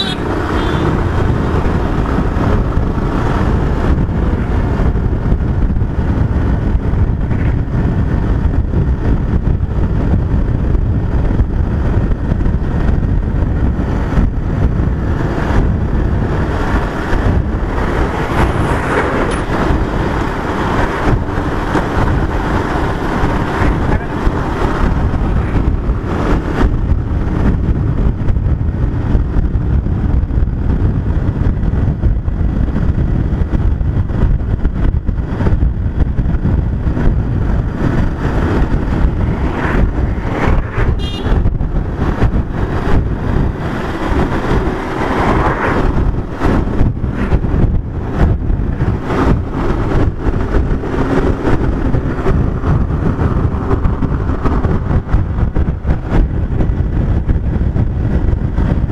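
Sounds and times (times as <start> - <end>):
motorcycle engine: 0.0 - 58.9
tyre noise on road: 0.0 - 58.9
wind noise on microphone: 0.0 - 58.9.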